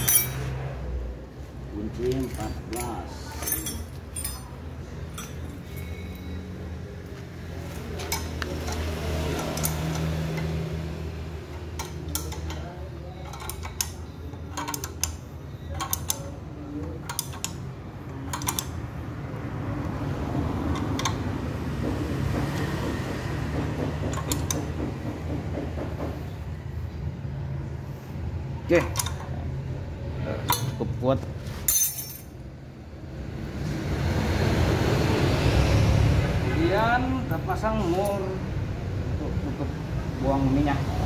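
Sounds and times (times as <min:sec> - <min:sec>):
spanner clicking against metal nuts: 0:08.0 - 0:10.6, 0:11.5 - 0:18.9, 0:20.6 - 0:25.4, 0:28.7 - 0:29.4.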